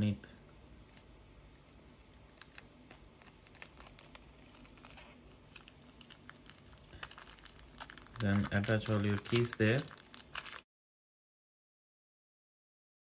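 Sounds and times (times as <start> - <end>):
sticky tape crinkling: 0.9 - 10.6.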